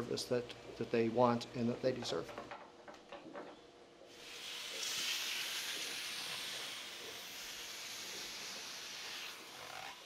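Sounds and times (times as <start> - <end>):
rushing hiss: 4.1 - 10.0.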